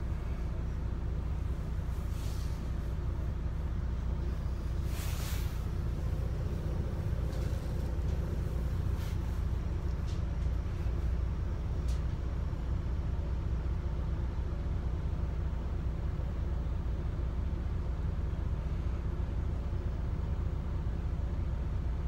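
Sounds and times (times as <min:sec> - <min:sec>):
bus engine idling: 0:00.0 - 0:22.0
brief hiss: 0:04.8 - 0:05.7.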